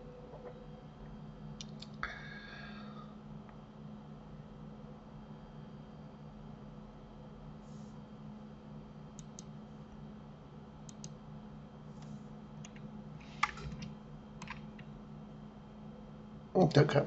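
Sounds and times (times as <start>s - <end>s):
low steady hum: 0.0s - 17.0s
mouse and keyboard clicks: 9.2s - 9.5s, 10.9s - 11.2s, 12.6s - 14.9s.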